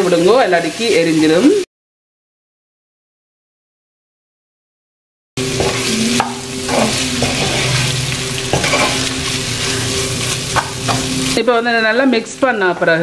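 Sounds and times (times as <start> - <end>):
food sizzling in oil: 0.0 - 1.7, 5.4 - 13.0
spatula scraping a pot: 5.6 - 11.4.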